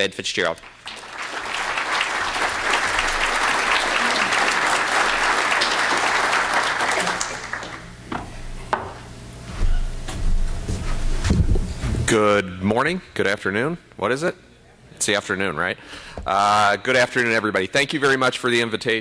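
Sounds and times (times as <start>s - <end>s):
audience applauding: 0.6s - 8.0s.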